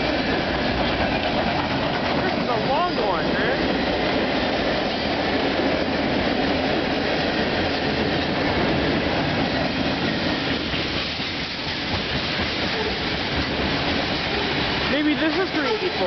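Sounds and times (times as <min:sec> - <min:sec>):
steel wheels on rails: 0:00.0 - 0:16.0.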